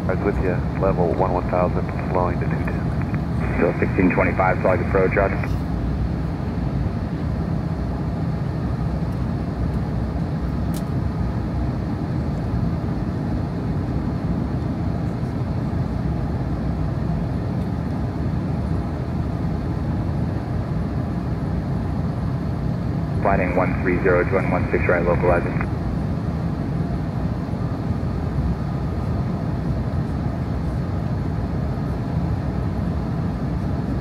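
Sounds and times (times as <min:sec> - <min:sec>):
airplane cabin engine rumble: 0:00.0 - 0:34.0.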